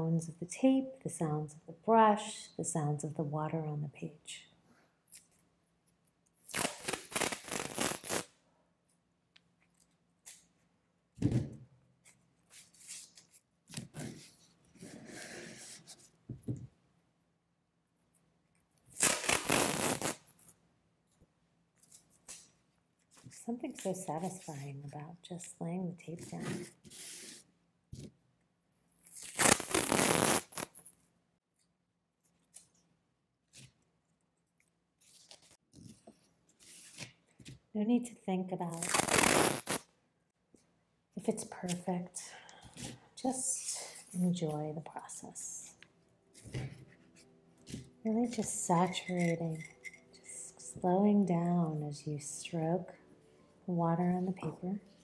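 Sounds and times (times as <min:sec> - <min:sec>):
tape rustling on paper: 0:05.1 - 0:08.3, 0:12.0 - 0:16.2, 0:21.8 - 0:25.6, 0:34.5 - 0:37.7
tape ripping off roll: 0:06.4 - 0:08.3, 0:18.9 - 0:20.5, 0:29.0 - 0:30.9, 0:38.7 - 0:39.9.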